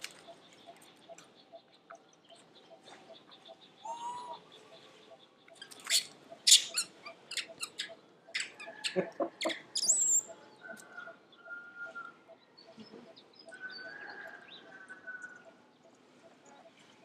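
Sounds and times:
baby monkeys squealing: 0:05.9 - 0:10.2.

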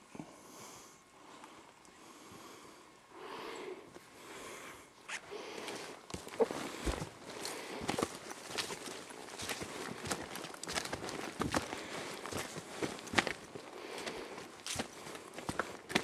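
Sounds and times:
brush rustling: 0:05.5 - 0:16.0
footsteps on forest floor: 0:05.5 - 0:16.0.

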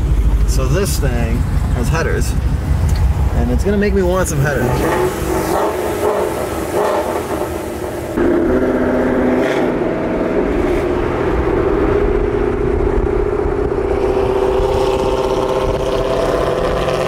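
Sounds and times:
car exhaust droning: 0:00.0 - 0:17.0
tyre and wind noise: 0:09.5 - 0:17.0.

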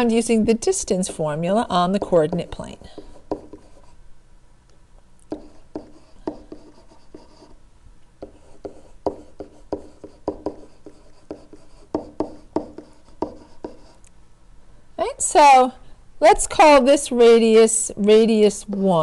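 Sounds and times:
stylus tapping and scratching screen: 0:01.8 - 0:04.0, 0:05.3 - 0:07.6, 0:08.2 - 0:14.0.

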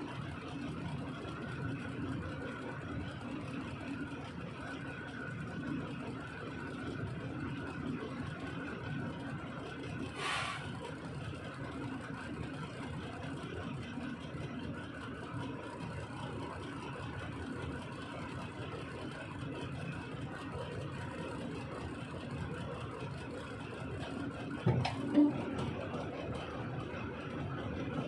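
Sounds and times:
diesel engine idling: 0:00.0 - 0:28.0
short hiss: 0:10.2 - 0:10.7.

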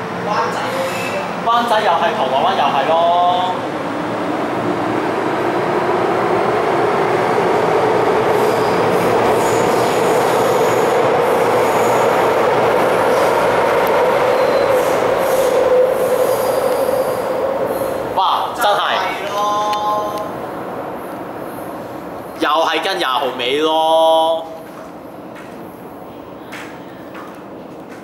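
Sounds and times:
train wheels rumbling on rail: 0:00.0 - 0:23.4, 0:24.4 - 0:28.0
high wheel squeal: 0:14.3 - 0:18.0.

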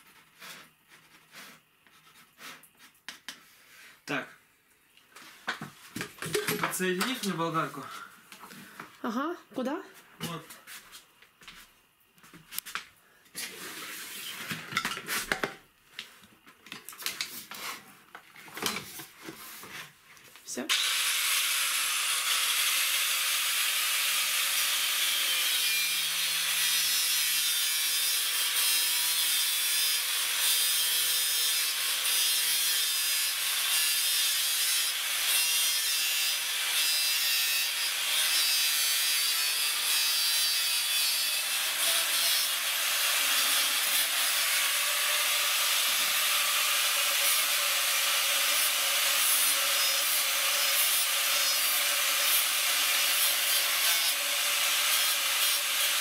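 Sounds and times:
angle grinder cutting plastic pipe: 0:20.7 - 0:56.0.

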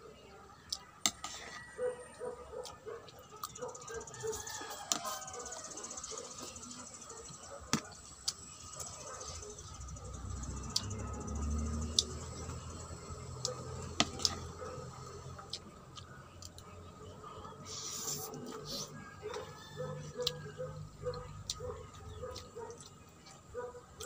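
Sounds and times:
person chewing noodles: 0:20.1 - 0:20.4.

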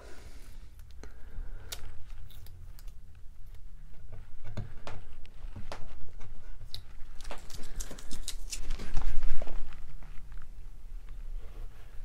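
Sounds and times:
tape peeling clicks and crinkles: 0:06.7 - 0:09.2.

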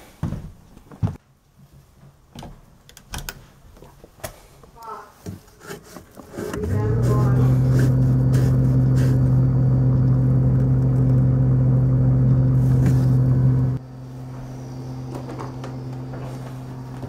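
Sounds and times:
refrigerator electrical hum: 0:06.6 - 0:17.0.

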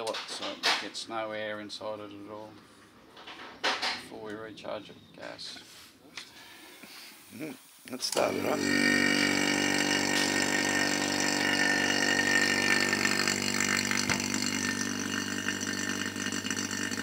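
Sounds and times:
vacuum pump running: 0:08.1 - 0:17.0.

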